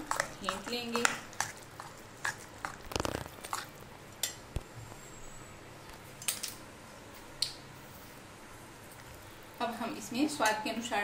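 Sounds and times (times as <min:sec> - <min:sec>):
spoon beating batter in glass bowl: 0:00.0 - 0:03.8.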